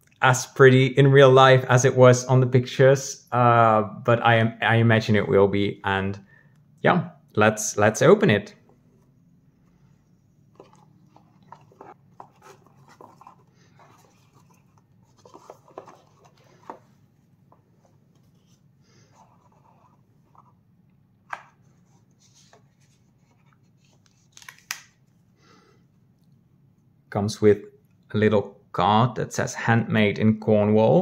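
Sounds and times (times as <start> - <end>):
ribbon rustling: 8.7 - 20.6
cardboard box handling: 10.5 - 20.6.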